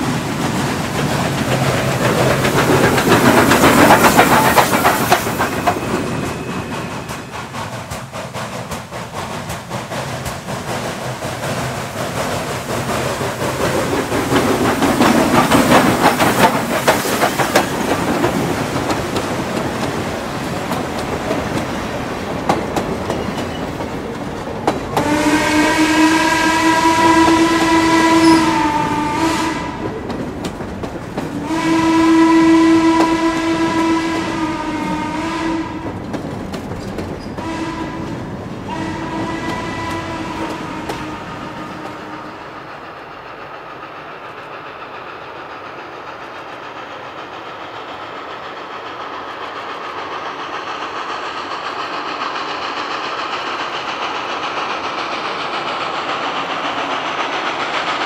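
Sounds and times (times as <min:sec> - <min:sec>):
steam locomotive exhaust: 0:00.0 - 0:58.0
steam chime whistle blasts: 0:25.0 - 0:29.7.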